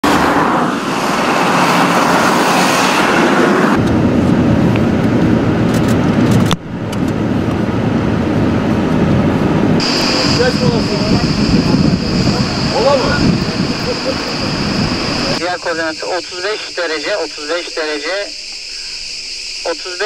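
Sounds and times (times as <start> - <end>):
vehicles driving on a road: 0.0 - 15.4.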